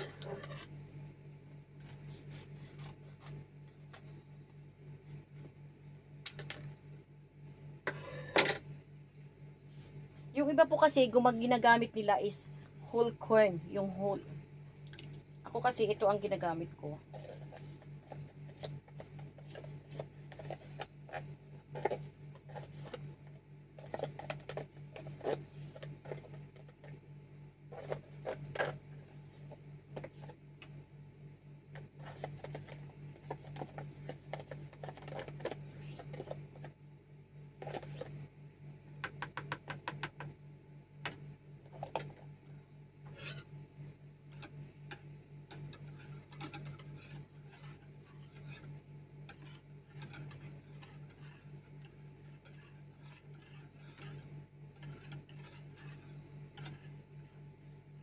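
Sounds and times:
steady low hum: 0.0s - 58.0s
spoon scraping a can: 43.1s - 43.5s, 45.5s - 57.0s
stirring liquid: 45.4s - 57.8s.

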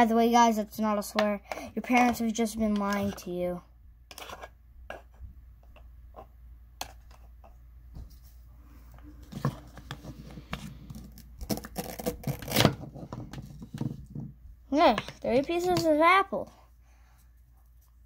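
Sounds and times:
knife cutting an apple: 9.8s - 13.1s.

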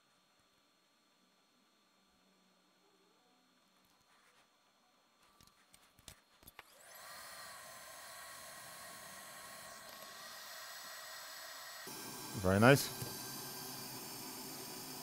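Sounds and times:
curing lamp fan hiss: 0.0s - 15.0s
faint wavering whine: 0.0s - 15.0s.

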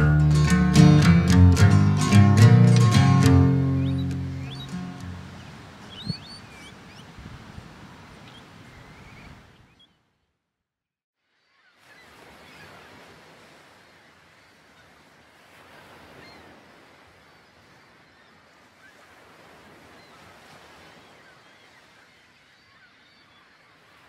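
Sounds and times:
surf washing: 0.0s - 9.7s, 11.8s - 22.8s
short bird calls: 3.8s - 7.2s.

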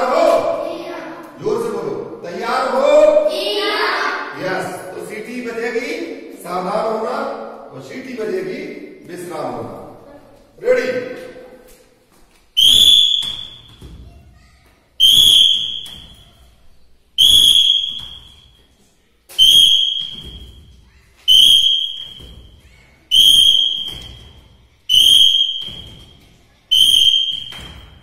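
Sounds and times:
whistle blasts echoing in a hall: 12.5s - 14.0s, 15.0s - 28.0s.

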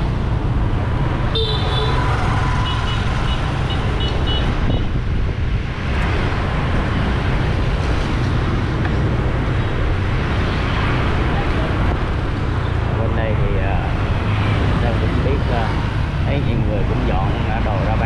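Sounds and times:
traffic engine and road rumble: 0.0s - 18.0s
vehicle horn honking: 1.3s - 4.9s.

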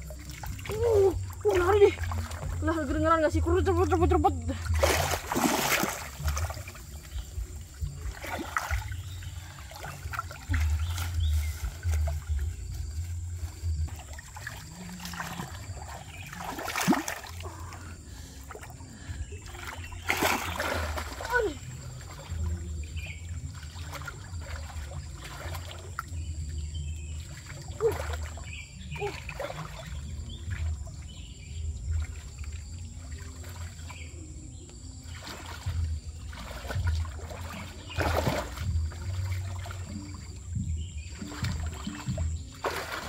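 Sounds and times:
water trickling and splashing: 0.0s - 43.0s
steady low rumble: 6.1s - 14.9s.

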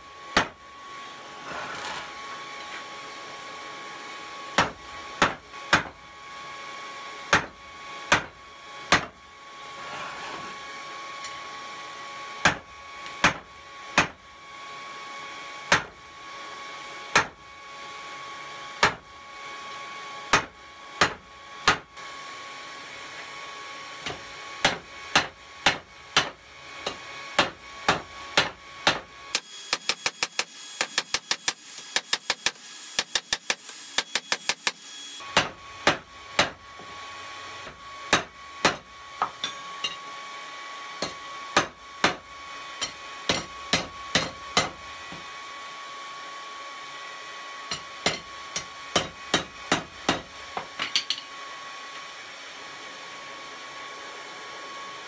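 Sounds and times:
hammer striking hot metal on anvil: 0.4s - 0.6s, 4.6s - 5.9s, 7.3s - 8.3s, 8.9s - 9.1s, 12.4s - 12.6s, 13.2s - 13.4s, 14.0s - 14.2s, 15.7s - 15.9s, 17.1s - 17.4s, 18.8s - 19.0s, 20.3s - 21.8s, 24.0s - 36.6s, 38.1s - 40.0s, 41.0s - 42.2s, 42.8s - 44.8s, 47.7s - 51.3s.

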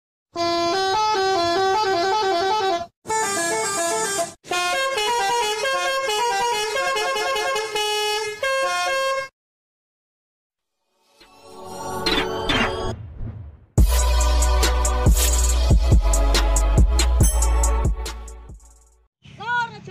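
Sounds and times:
multi-tone musical horn melody: 0.3s - 9.3s.

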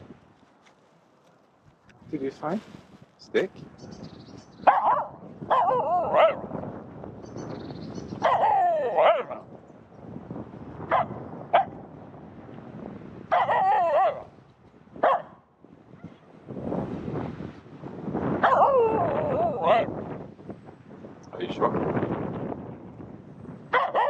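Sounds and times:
dog barking: 4.6s - 6.5s, 8.2s - 9.4s, 10.9s - 11.8s, 13.3s - 14.3s, 15.0s - 15.4s, 18.4s - 19.9s, 23.7s - 24.0s.

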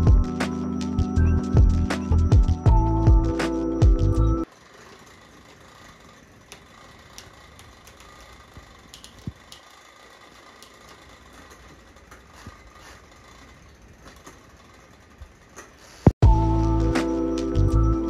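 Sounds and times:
faint clicks and ticks: 4.8s - 16.1s.

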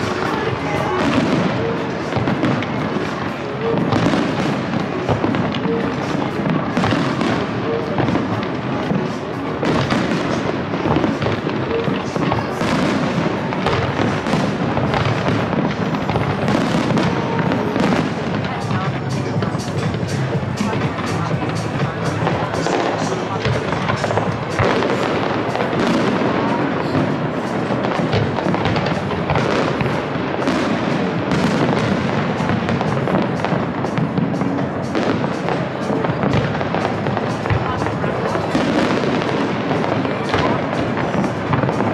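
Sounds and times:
fireworks bangs and crackles: 0.0s - 41.9s.

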